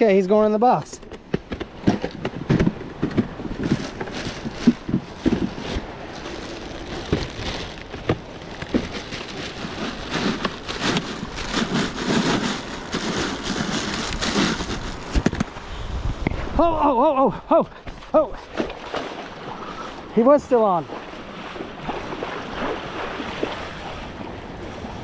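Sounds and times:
plastic bags crinkling: 3.6 - 15.1.

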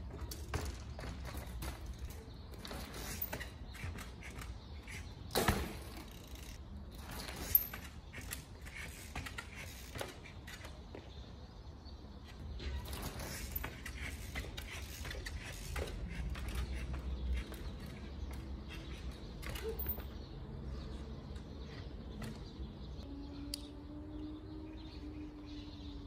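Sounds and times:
bicycle freewheel ratcheting: 5.8 - 6.6.

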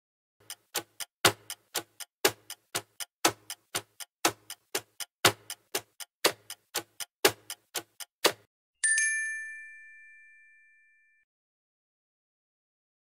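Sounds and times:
clock ticking: 0.4 - 8.5.

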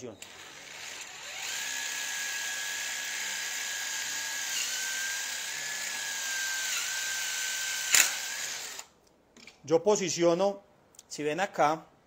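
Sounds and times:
cordless drill boring into wood: 0.2 - 8.9.

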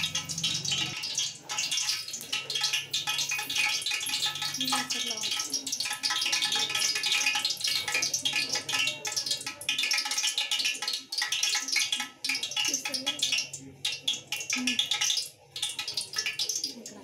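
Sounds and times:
hot oil sizzling in a pot: 0.0 - 17.0.

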